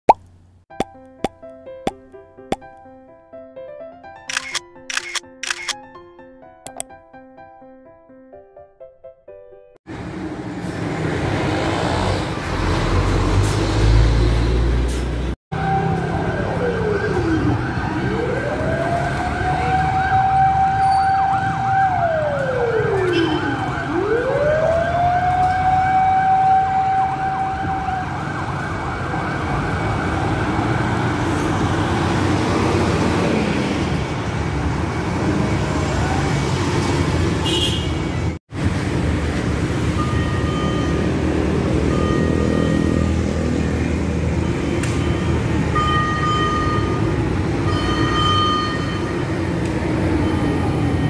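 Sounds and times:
street traffic: 4.3s - 5.8s, 9.8s - 51.0s
truck engines running: 9.9s - 19.7s, 28.1s - 51.0s
fire truck siren wailing: 15.5s - 37.0s, 39.5s - 51.0s.

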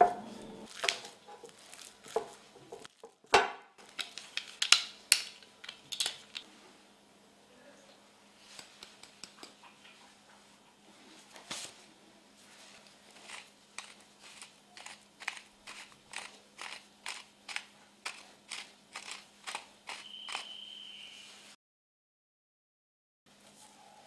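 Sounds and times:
pepper mill grinding: 0.7s - 6.4s, 12.8s - 20.7s.

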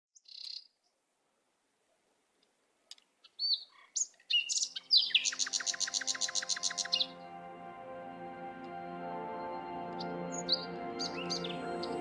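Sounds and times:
birds chirping and whistling: 3.3s - 7.3s, 9.9s - 12.0s.

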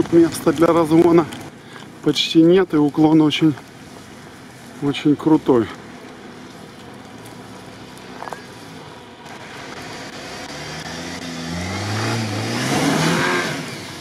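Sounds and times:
spinning tyres throwing sand: 0.0s - 14.0s
engine revving under load: 7.5s - 14.0s.

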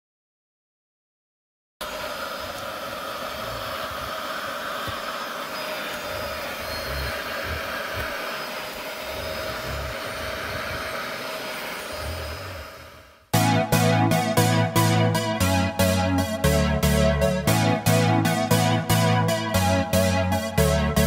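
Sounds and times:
vacuum cleaner running: 1.8s - 21.0s.

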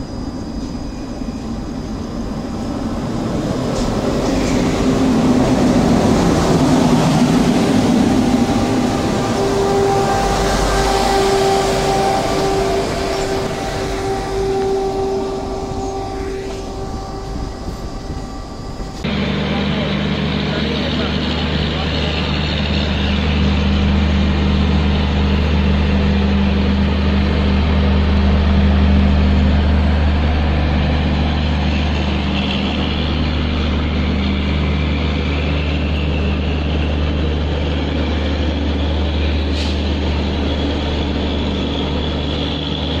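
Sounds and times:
electric locomotive humming: 0.0s - 43.0s.

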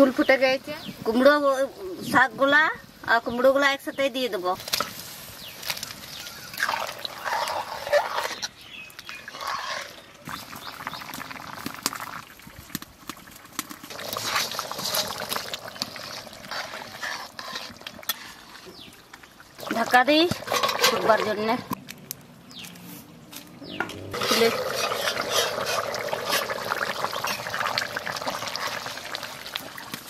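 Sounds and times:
curry bubbling: 5.6s - 21.8s, 23.9s - 30.0s
ladle stirring curry: 5.8s - 11.0s, 13.6s - 21.3s, 24.1s - 27.6s.

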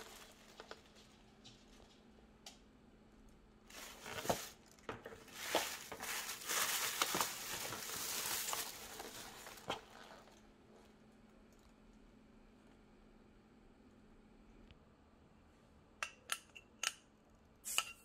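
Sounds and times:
plastic bag rustling: 0.0s - 1.8s, 3.7s - 10.9s.

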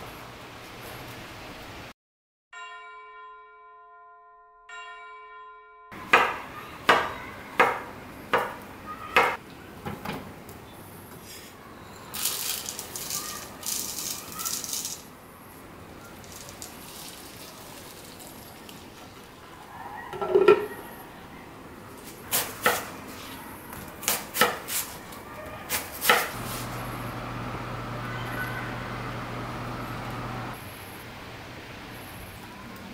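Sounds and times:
oats poured into plastic bowl: 12.2s - 15.1s, 16.1s - 19.0s
milk pouring: 16.1s - 19.3s
dishes clattering: 20.1s - 20.8s.

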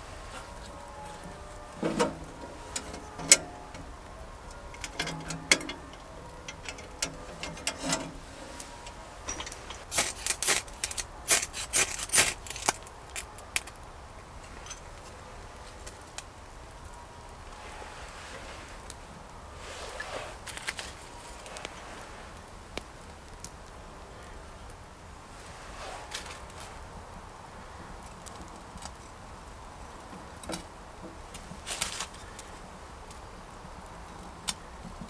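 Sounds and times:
clicks and rattles: 4.7s - 13.7s.

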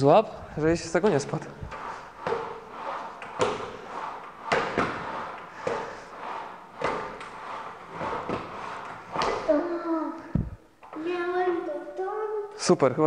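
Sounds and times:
rowing machine seat thuds: 0.6s - 9.8s
feet landing on weight plate: 1.7s - 6.1s.

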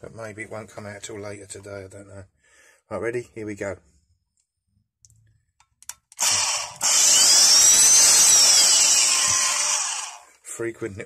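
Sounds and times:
electric drill whining: 6.2s - 10.4s.

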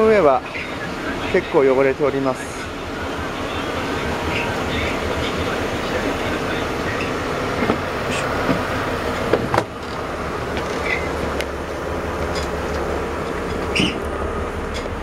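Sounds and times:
faint hum: 0.0s - 9.3s
rumbling background noise: 0.0s - 15.0s.

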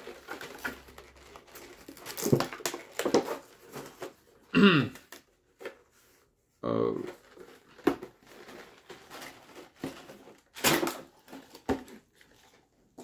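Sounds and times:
plastic blister pack crinkling: 0.0s - 4.1s.

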